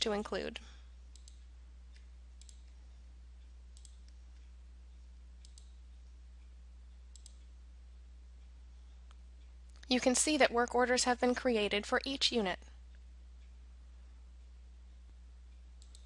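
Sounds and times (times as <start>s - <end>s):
low steady hum: 0.0s - 16.0s
computer mouse clicks: 1.1s - 2.8s, 3.7s - 4.5s, 5.4s - 5.8s, 7.1s - 7.5s, 15.8s - 16.0s.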